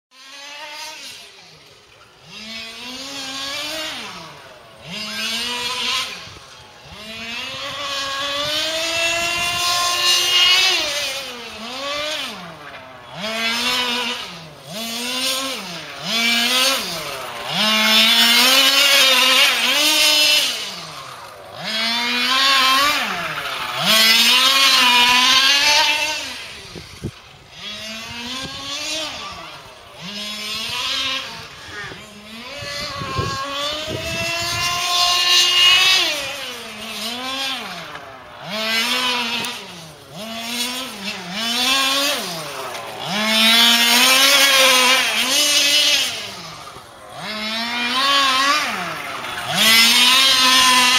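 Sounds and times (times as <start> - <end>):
two-stroke engine revving: 0.1 - 50.9.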